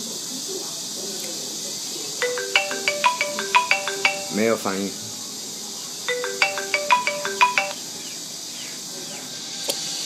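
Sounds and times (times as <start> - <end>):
marimba phone ringtone: 2.2 - 4.7, 6.1 - 7.9.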